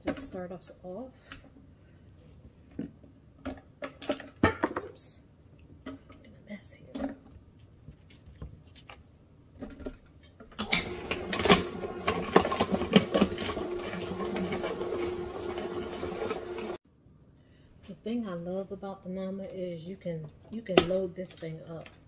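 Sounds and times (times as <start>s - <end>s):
juicer motor hum: 10.6s - 16.8s.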